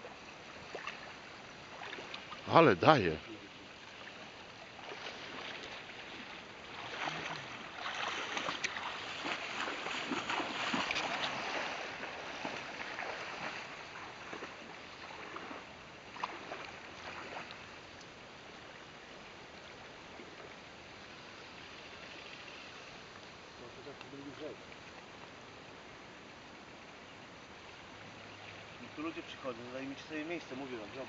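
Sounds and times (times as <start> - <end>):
river current rushing: 0.0 - 19.0
water splashing: 0.6 - 17.8.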